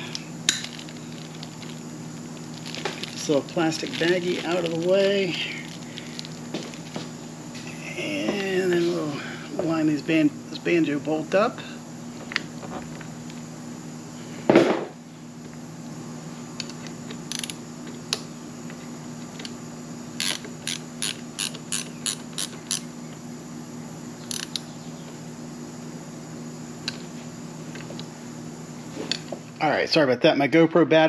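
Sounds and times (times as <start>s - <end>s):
steady low hum: 0.0s - 31.0s
thump: 14.5s - 14.9s
hand ratchet clicking: 20.2s - 22.8s, 24.3s - 24.6s.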